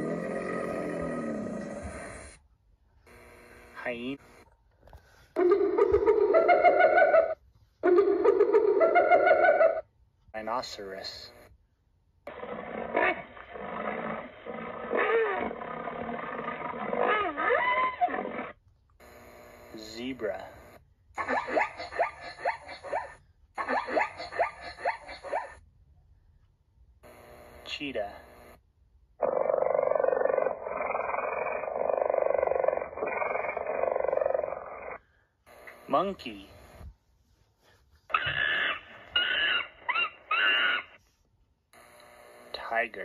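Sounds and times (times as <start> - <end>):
cheetah call through small speaker: 21.2 - 25.5, 38.1 - 41.0.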